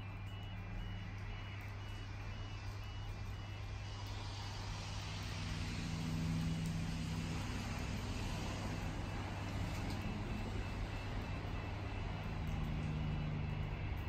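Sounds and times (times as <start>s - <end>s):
diesel locomotive engine drone: 0.0s - 14.0s.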